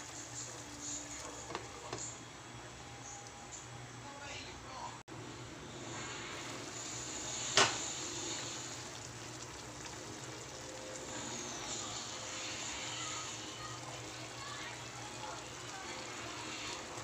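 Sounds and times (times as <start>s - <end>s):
stew bubbling in a pot: 0.0s - 3.4s, 5.6s - 17.0s.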